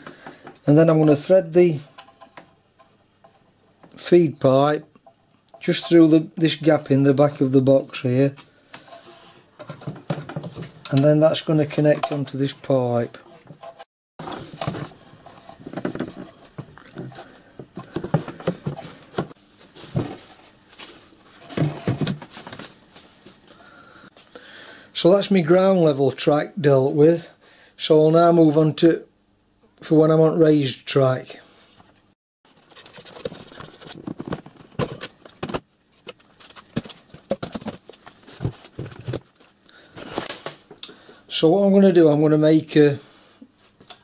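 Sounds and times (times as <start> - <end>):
knocks and clunks of handling: 1.8 - 4.0, 8.4 - 12.6, 13.2 - 20.4, 21.4 - 22.7, 32.7 - 40.7.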